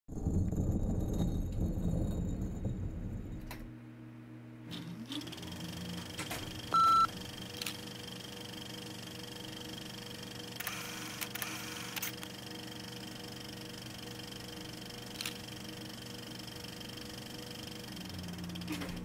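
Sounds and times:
low rumble: 0.1 - 3.8
faint steady hum: 1.4 - 19.0
short steady beep: 6.7 - 7.1.

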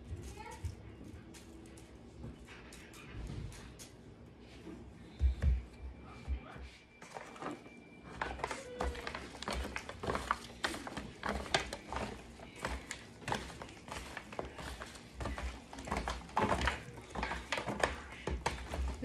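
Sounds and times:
meat being moved around: 7.0 - 19.0
foil pan crinkling: 8.1 - 19.0.

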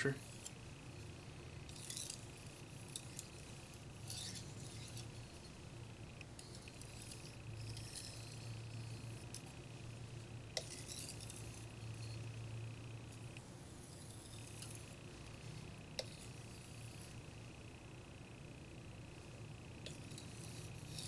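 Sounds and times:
knife scraping on whetstone: 1.6 - 5.5, 6.4 - 9.5, 10.6 - 12.2, 13.8 - 14.9, 15.6 - 17.2, 19.8 - 21.0.

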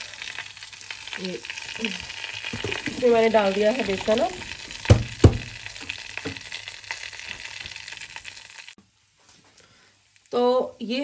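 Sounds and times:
ghee sizzling in a pot: 0.0 - 11.0
sharp knock: 4.9 - 5.6.

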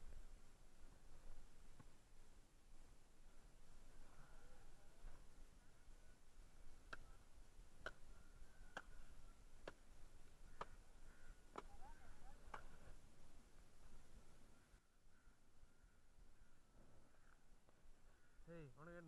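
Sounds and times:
faint sharp clicks: 6.9 - 7.1, 7.8 - 8.1.

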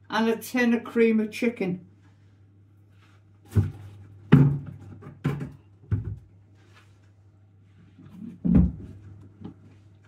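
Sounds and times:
groceries knocking on worktop: 3.5 - 6.3.

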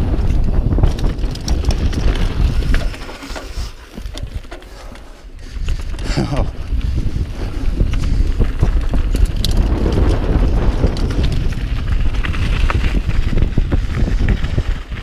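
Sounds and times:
bike knocking and rattling: 0.0 - 15.0
wind rumble on microphone: 0.0 - 15.0
tyres rolling over gravel: 0.8 - 15.0.

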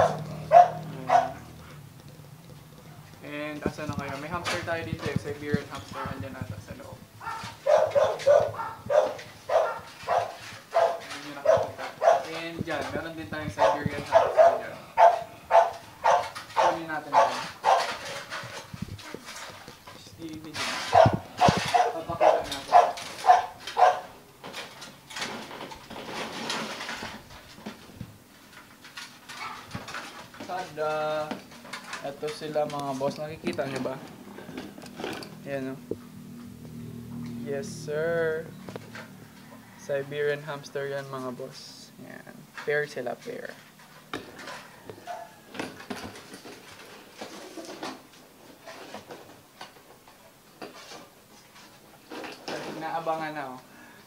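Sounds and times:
dog barking high yelps: 0.0 - 1.6, 7.2 - 12.3, 13.6 - 18.0, 20.9 - 24.2, 45.0 - 45.4
plastic box scraping: 3.5 - 35.5, 45.7 - 49.8.

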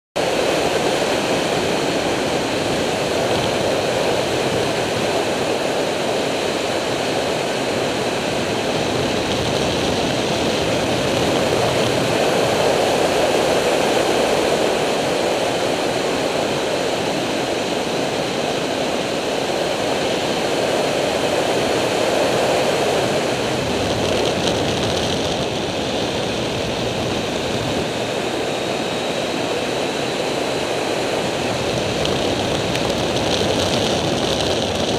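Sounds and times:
wind rushing over microphone: 0.2 - 34.9
motorcycle engine running: 23.2 - 28.0, 31.3 - 34.9.

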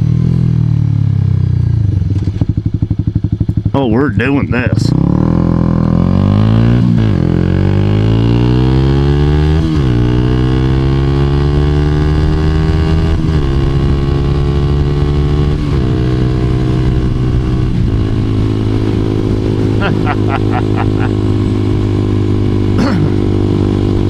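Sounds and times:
motorcycle engine accelerating: 0.0 - 24.0.

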